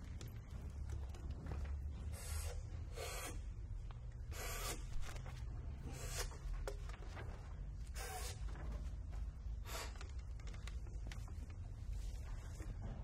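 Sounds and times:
paper rustling: 4.9 - 5.6, 6.2 - 12.8.

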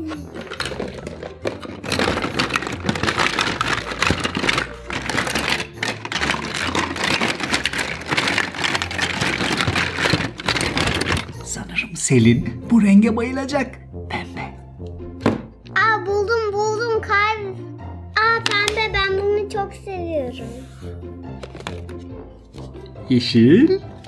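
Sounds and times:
plastic toys clattering in a bin: 0.0 - 11.6, 18.4 - 18.9, 21.4 - 22.0.

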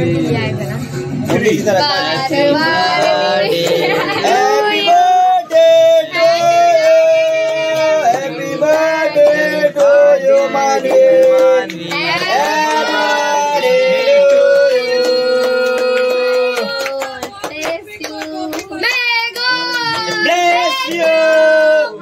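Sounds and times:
person singing birthday song: 1.3 - 22.0.

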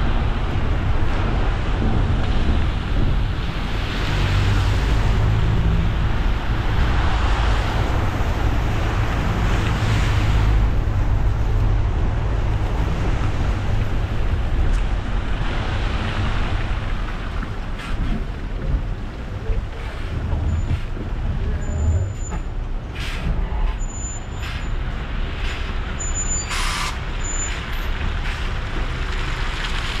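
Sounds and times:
car road rumble: 0.0 - 30.0
tyre hiss on wet road: 26.5 - 28.7.

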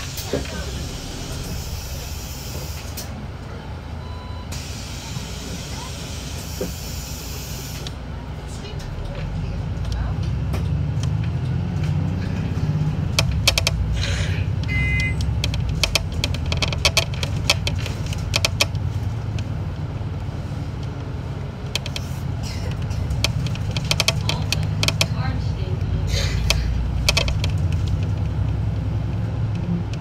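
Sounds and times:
bus engine and road rumble: 0.0 - 30.0
rattling clicks: 13.1 - 14.0, 14.6 - 19.5, 20.8 - 25.3, 26.4 - 28.6
short beep: 14.7 - 15.3.

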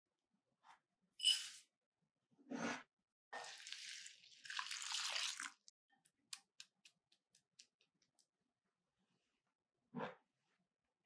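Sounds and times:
milk splashing into bowl: 3.5 - 5.7.

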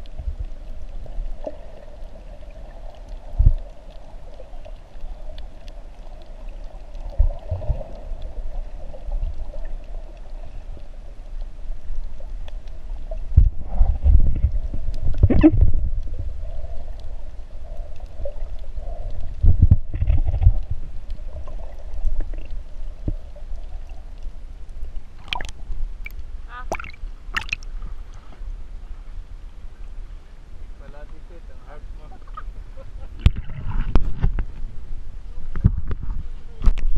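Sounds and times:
faint steady hum: 0.0 - 36.9
muffled underwater gurgling: 13.4 - 16.9
sharp splashes: 25.2 - 25.6, 26.5 - 27.7.

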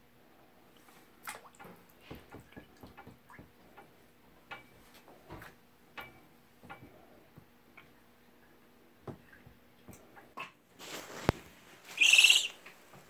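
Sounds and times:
small water splashes and drips: 0.7 - 4.7.

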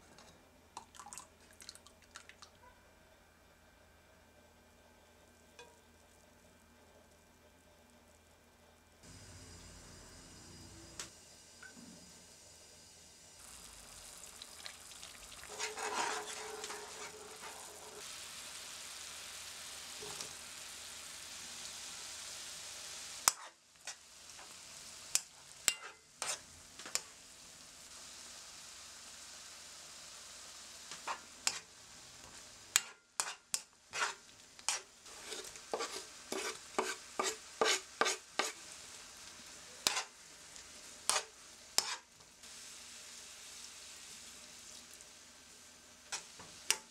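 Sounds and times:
sauce sizzling in frying pan: 12.3 - 46.9
utensils scraping against pan: 15.4 - 18.0, 25.1 - 27.1, 30.9 - 31.7, 32.8 - 38.6, 39.8 - 40.2, 41.0 - 42.1.

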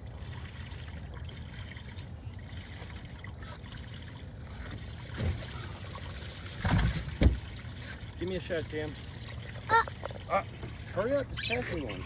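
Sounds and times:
water trickling and lapping: 0.0 - 12.0
dull thump: 6.6 - 7.5.

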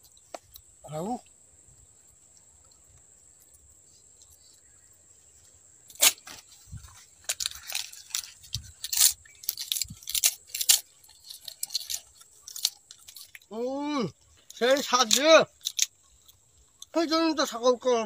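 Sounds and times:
man chewing crunchy leaf: 0.0 - 5.1, 5.9 - 13.5.

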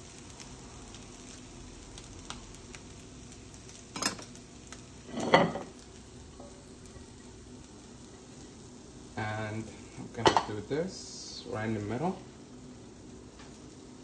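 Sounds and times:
faint sizzle from frying pan: 0.0 - 14.0
kitchenware clatter: 3.9 - 4.3, 5.1 - 5.7, 10.2 - 10.6.

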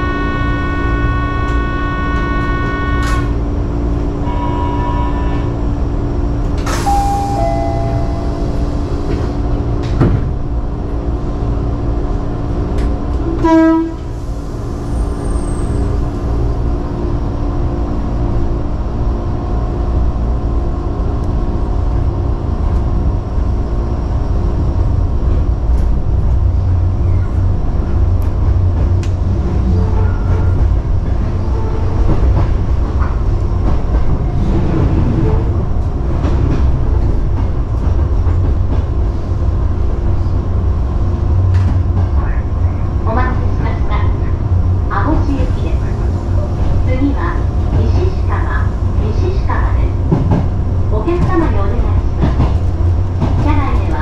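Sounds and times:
short loud tone: 6.8 - 8.4.

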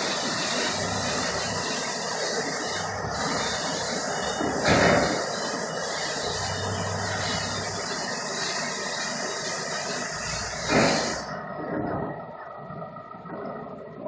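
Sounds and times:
car wash machine hissing: 0.0 - 11.6.

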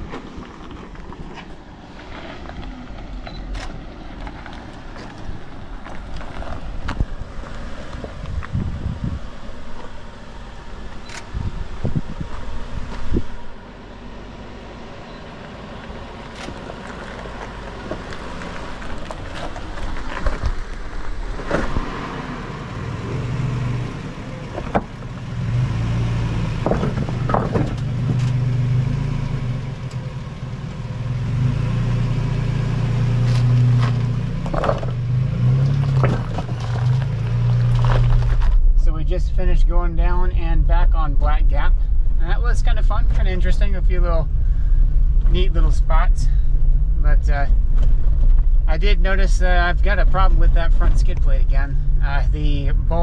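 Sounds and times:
vehicle engine droning: 0.0 - 53.0
knocks and rattles: 26.6 - 28.4.

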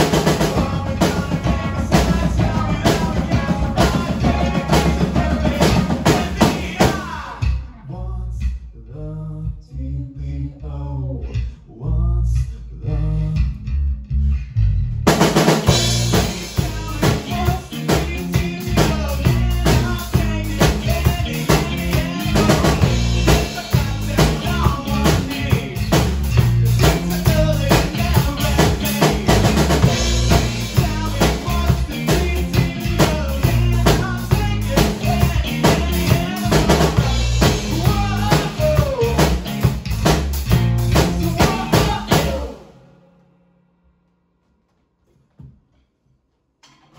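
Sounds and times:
rock band playing live: 0.0 - 7.7, 15.1 - 42.9.

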